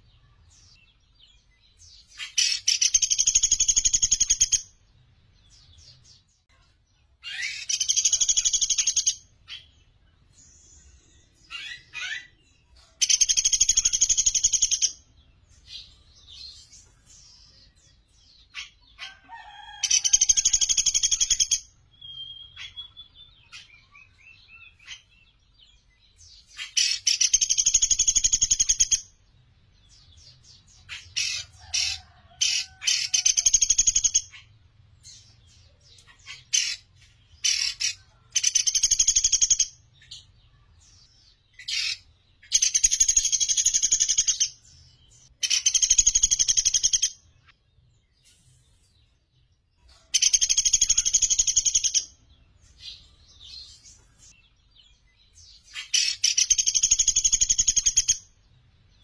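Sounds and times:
woodpecker rattling trills: 45.4s - 47.1s.

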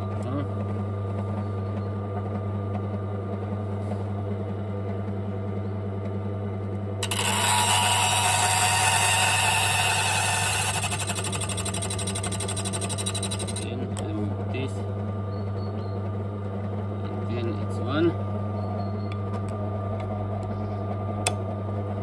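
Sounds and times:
key cutting machine motor hum: 7.0s - 14.4s.

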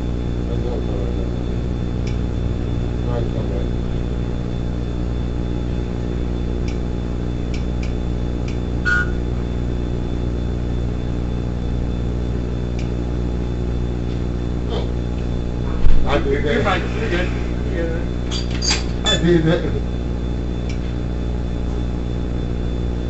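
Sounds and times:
steady low hum: 0.0s - 23.0s
short beep: 8.8s - 9.2s.

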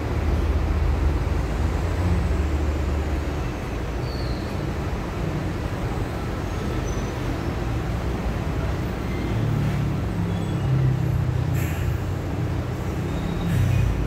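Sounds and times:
large engine rumbling: 0.0s - 14.0s.

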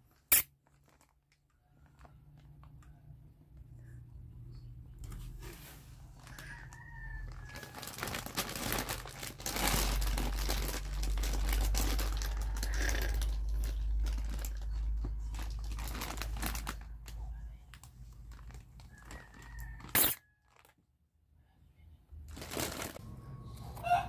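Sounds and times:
plastic sheeting crinkling: 0.0s - 2.1s, 5.3s - 20.7s, 22.2s - 23.2s
low rumble: 9.4s - 17.2s.

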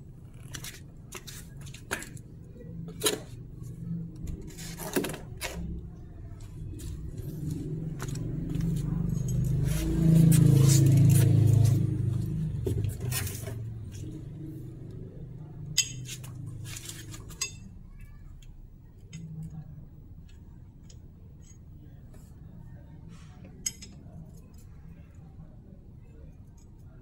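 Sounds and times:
metal hand tools clinking: 15.8s - 16.2s.

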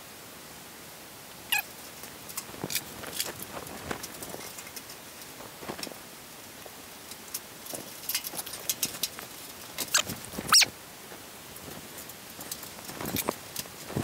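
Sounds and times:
wires clicking and rustling: 1.5s - 6.0s, 6.6s - 10.7s, 11.6s - 14.0s
short squeak falling in pitch: 9.9s - 10.7s.

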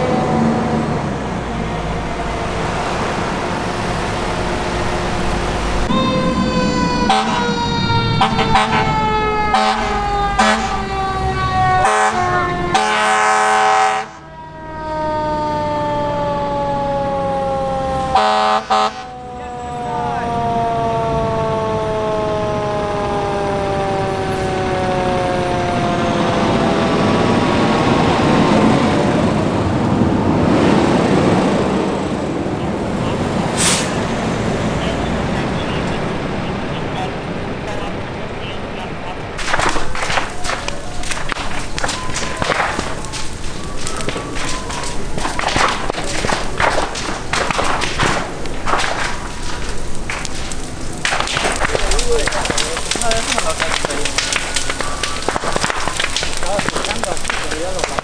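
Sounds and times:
fire engine siren wailing: 0.0s - 58.0s
truck engine and road noise: 0.0s - 58.0s
air horn blasts: 5.9s - 14.4s, 18.1s - 19.5s.

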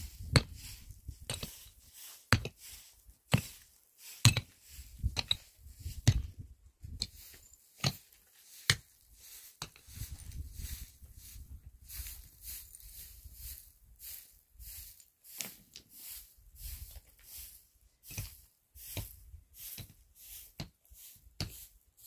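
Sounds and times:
pick striking stony earth: 0.1s - 2.6s, 3.3s - 7.2s, 7.8s - 8.9s, 18.1s - 20.7s.

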